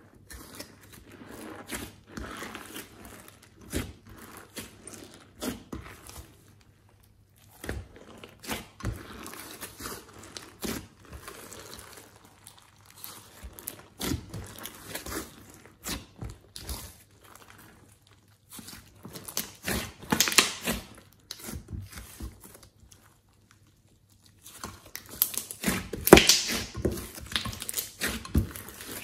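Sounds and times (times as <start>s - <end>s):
slime squishing with clicks and pops: 17.8s - 29.0s.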